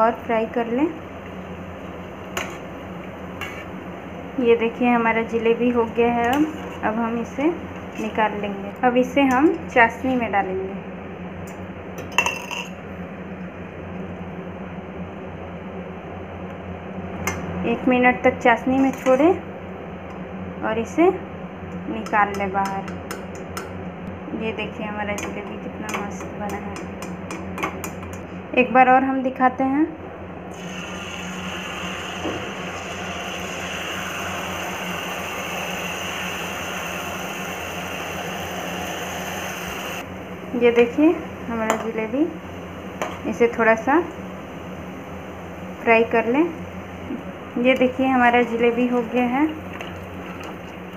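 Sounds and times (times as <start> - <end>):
batter sizzling in hot oil: 30.5 - 40.0.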